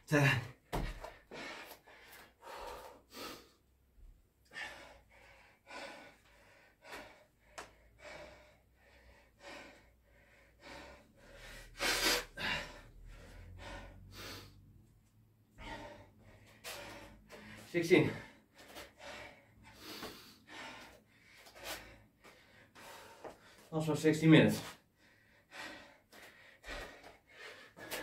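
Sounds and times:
man panting hard: 0.0 - 28.0
man gasping: 10.7 - 14.7.

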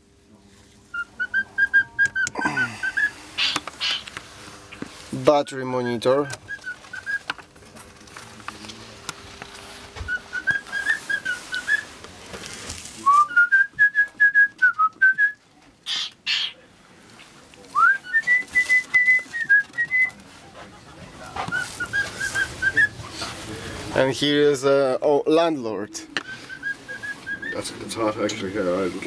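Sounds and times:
person whistling a tune: 13.0 - 15.4, 17.8 - 20.2.

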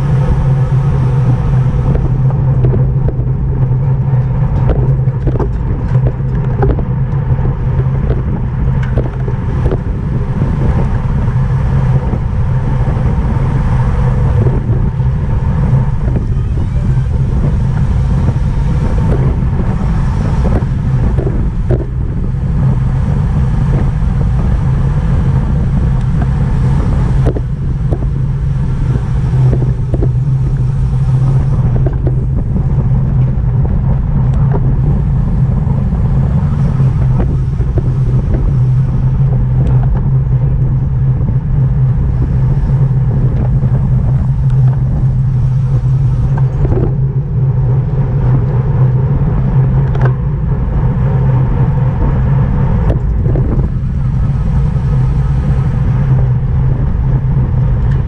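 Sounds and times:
bicycle road rumble: 0.0 - 58.0
wind rushing over microphone: 0.0 - 58.0.

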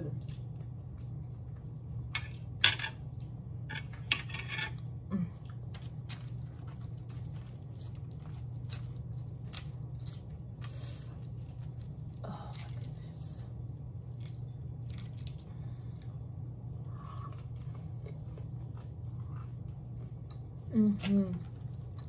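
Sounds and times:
low hum: 0.0 - 22.0
bread tearing rustles: 5.7 - 13.4.

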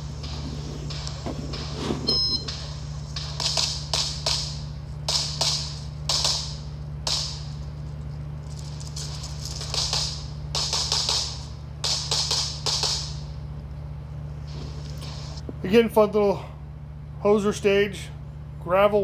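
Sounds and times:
shot timer beep: 2.1 - 2.6
rapid pistol shots: 2.6 - 7.5, 9.6 - 13.2.

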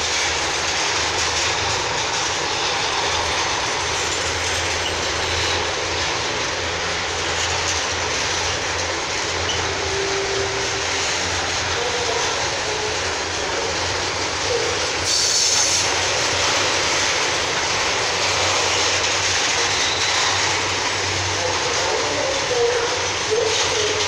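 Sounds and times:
freight train rumbling past: 0.0 - 24.0
high screech: 9.4 - 13.1.

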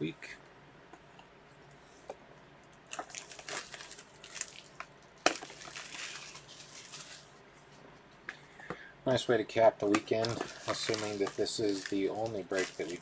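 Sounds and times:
shrink-wrap plastic crinkling: 2.8 - 7.4, 9.8 - 13.0.

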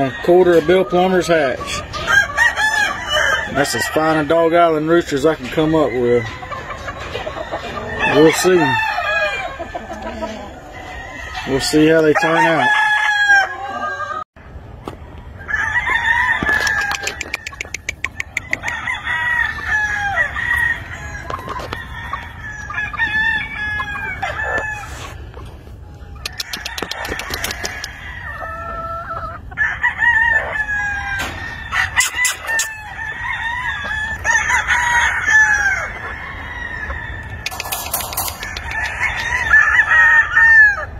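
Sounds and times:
roosters crowing: 0.0 - 14.3, 14.9 - 40.9
chickens clucking: 0.0 - 40.9.

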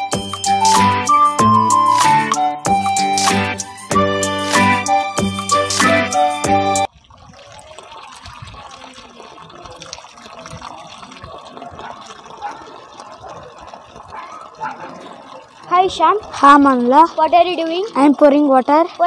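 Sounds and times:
music: 0.0 - 6.9
water running from a garden hose: 6.8 - 19.0.

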